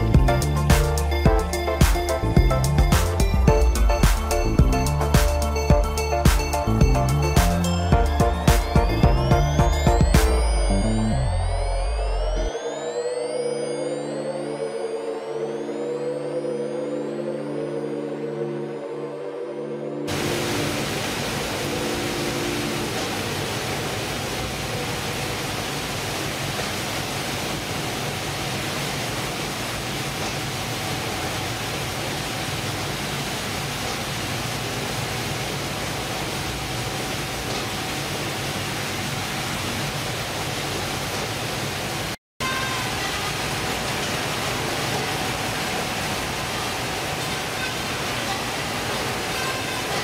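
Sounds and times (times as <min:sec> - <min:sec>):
processing machinery running: 0:20.1 - 0:42.1, 0:42.8 - 0:50.0.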